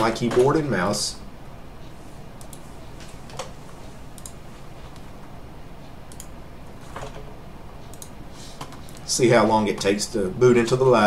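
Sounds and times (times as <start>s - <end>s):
steady low hum: 0.0s - 11.0s
keyboard and mouse clicks: 2.4s - 3.6s, 4.2s - 5.0s, 6.1s - 7.3s, 7.9s - 9.1s.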